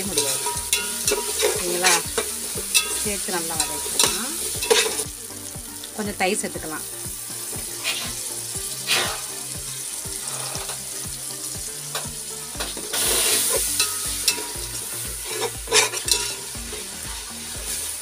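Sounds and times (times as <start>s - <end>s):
spatula scraping metal pot: 0.0s - 3.0s, 7.8s - 8.2s, 10.2s - 10.8s, 15.2s - 16.9s
food sizzling in hot oil: 0.0s - 18.0s.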